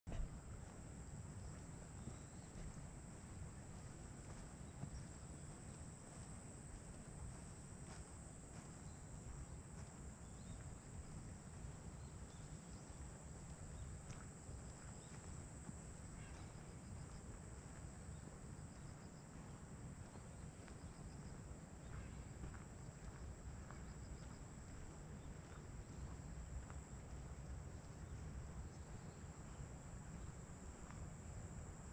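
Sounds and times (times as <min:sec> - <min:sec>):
wind rumble on microphone: 0:00.1 - 0:31.9
faint chirps: 0:16.0 - 0:17.4.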